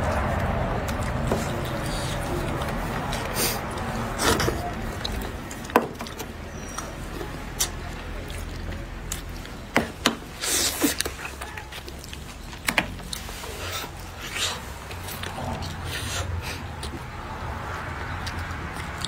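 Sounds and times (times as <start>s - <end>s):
lip smacks: 0.0s - 19.0s
sucking and slurping: 10.3s - 19.0s.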